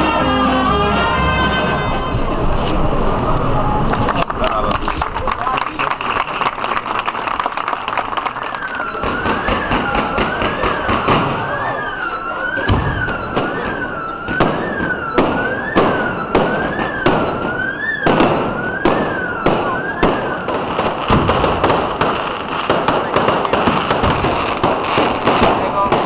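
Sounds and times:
fireworks bangs and crackles: 2.0 - 26.0
siren-like rising and falling tone: 8.5 - 25.3.

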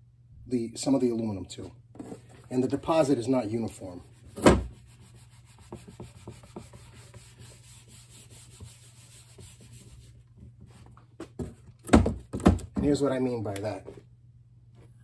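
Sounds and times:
paper towel rubbing on whiteboard: 2.0 - 10.9.

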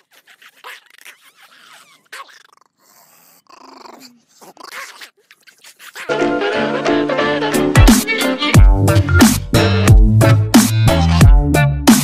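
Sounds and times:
small dog growling: 0.0 - 6.1.

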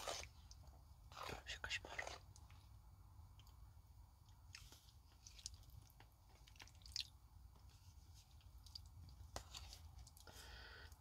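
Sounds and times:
chewing and mouth smacks: 4.4 - 7.2, 8.3 - 10.2.

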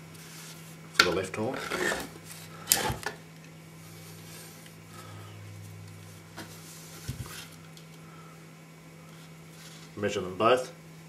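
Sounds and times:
skull scraping on carpet: 1.5 - 2.9.

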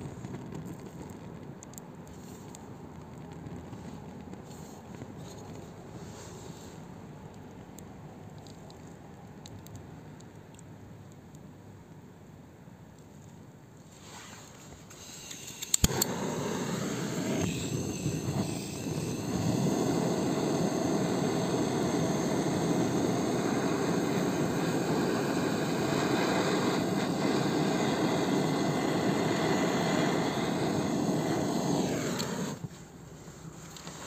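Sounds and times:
torch flame roaring: 0.0 - 5.2, 14.0 - 32.7
gas torch igniter clicks: 15.0 - 32.7.

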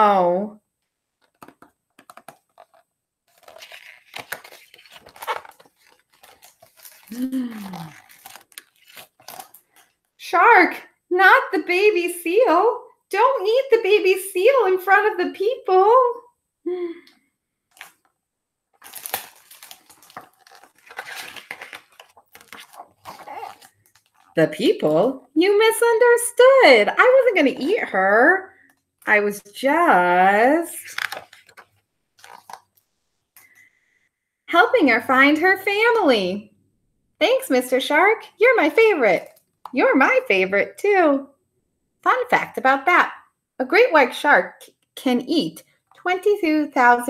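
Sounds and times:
book pages rustling: 1.2 - 10.1, 18.8 - 24.4, 30.8 - 33.1.

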